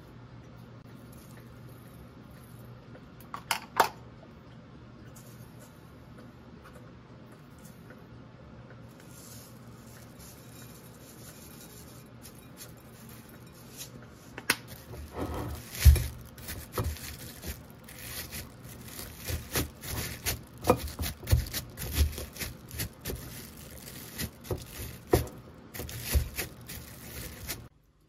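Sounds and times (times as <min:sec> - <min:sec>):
scraping and rustling: 0:08.9 - 0:27.7
knocks and taps of food preparation: 0:19.2 - 0:23.3, 0:24.2 - 0:26.8.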